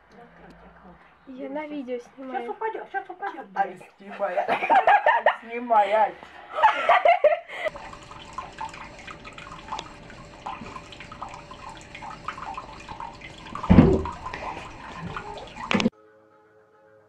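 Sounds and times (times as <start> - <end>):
faint steady tones: 7.6 - 15.9
tap water running into basin: 7.7 - 15.9.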